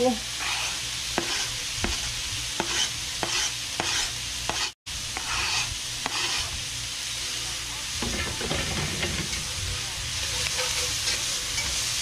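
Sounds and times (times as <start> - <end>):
food sizzling in hot oil: 0.0 - 12.0
utensil tapping and scraping board: 0.4 - 6.4.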